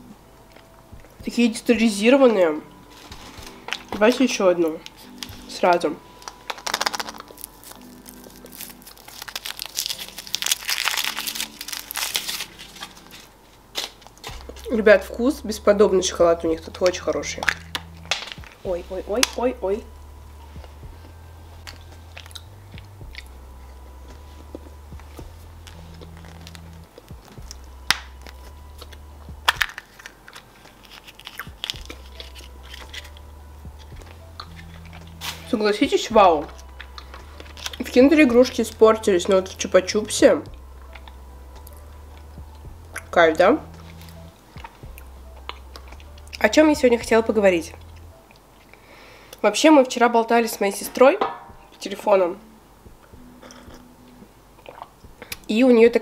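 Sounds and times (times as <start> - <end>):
low steady hum: 0.0 - 56.0
foil wrapper crinkling: 2.9 - 14.7, 25.6 - 33.2, 36.4 - 38.8
plastic capsule clicking and snapping: 6.2 - 7.4.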